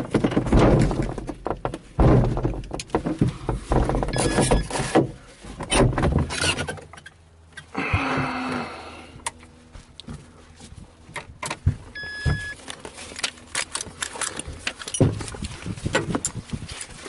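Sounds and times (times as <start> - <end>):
hands handling gear clicks and knocks: 11.0 - 17.0
short electronic beep: 12.0 - 12.6.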